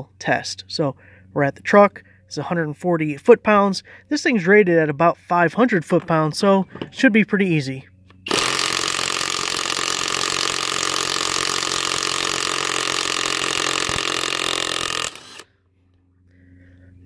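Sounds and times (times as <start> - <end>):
impact wrench hammering: 8.3 - 15.4.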